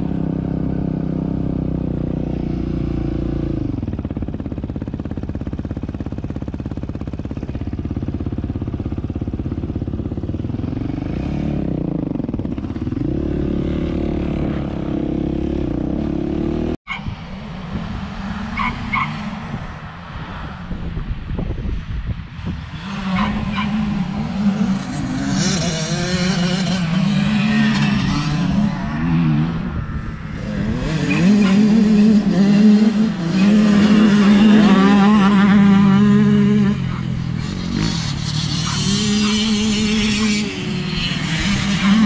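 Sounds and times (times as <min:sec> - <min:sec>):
quad bike engines revving: 0:00.0 - 0:17.1, 0:22.4 - 0:42.0.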